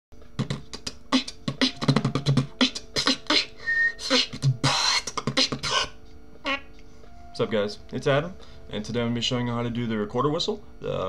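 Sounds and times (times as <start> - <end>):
vocal beatboxing: 0.4 - 6.0.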